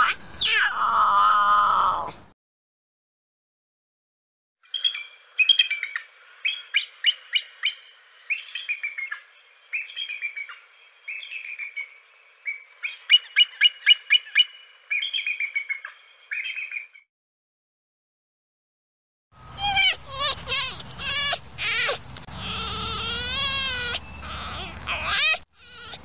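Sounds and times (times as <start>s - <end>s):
eagle chittering calls: 4.7s - 17.0s.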